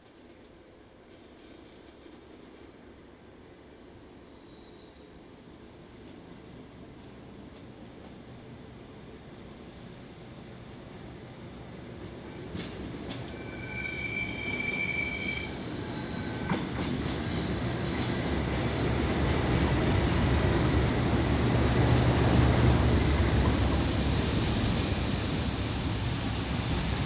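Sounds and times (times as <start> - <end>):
diesel locomotive passing: 6.0 - 27.0
high squeal: 13.3 - 16.5.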